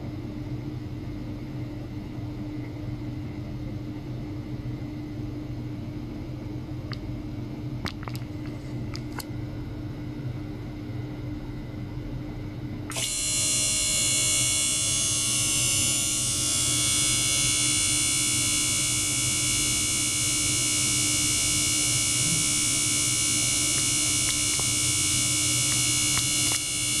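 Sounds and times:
electric pump whirring: 12.9 - 27.0.

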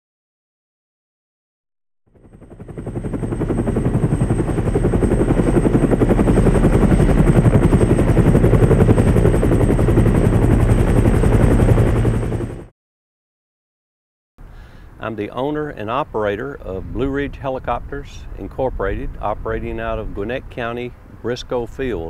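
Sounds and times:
helicopter rotor beating: 2.1 - 12.7.

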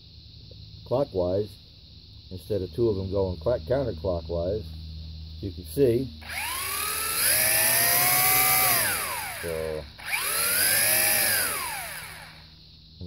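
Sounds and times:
toy drone motors whining: 6.2 - 12.6.

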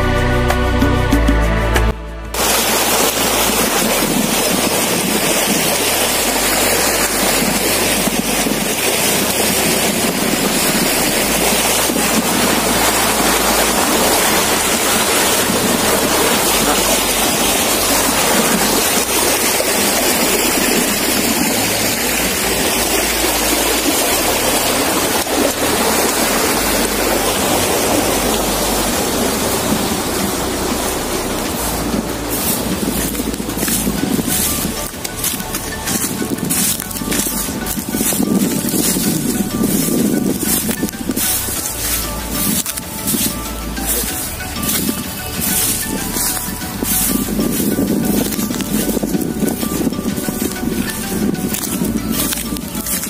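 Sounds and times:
steady rushing noise: 0.0 - 53.0.

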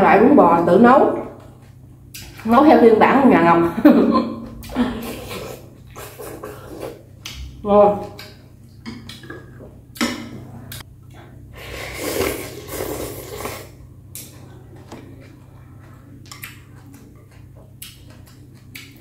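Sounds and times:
slurping noodles: 5.0 - 7.0, 11.6 - 13.9
quiet chewing: 12.0 - 19.0.

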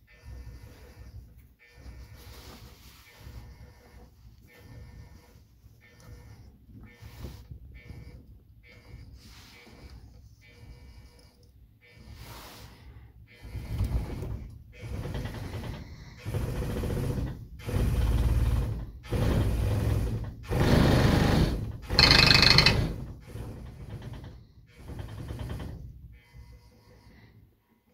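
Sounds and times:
shaker motor and rattling platform: 13.4 - 26.2.

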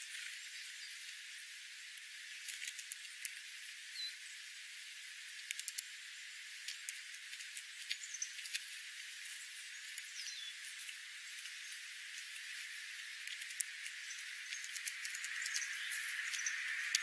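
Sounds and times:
birds pecking at seeds: 0.0 - 17.0
steady hiss: 0.0 - 17.0
high bird chirp: 10.0 - 10.6, 13.9 - 17.0.

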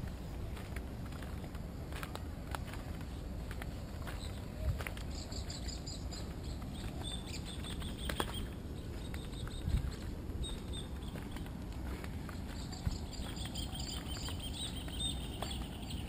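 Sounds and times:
footsteps on wood chips: 0.0 - 16.0
steady low rumble: 0.0 - 16.0
bird chirps: 4.0 - 11.5, 12.3 - 16.0.

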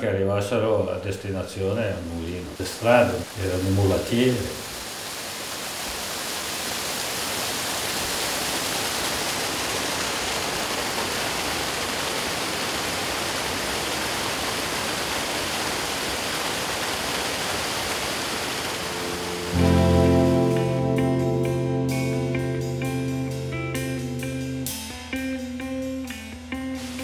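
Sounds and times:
waterfall rushing: 2.0 - 25.0.

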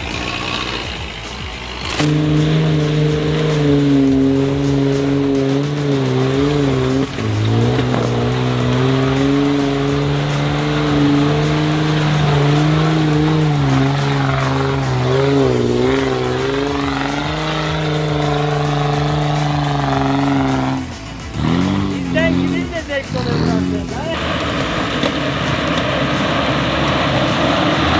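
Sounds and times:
engine working under load: 0.0 - 27.9.

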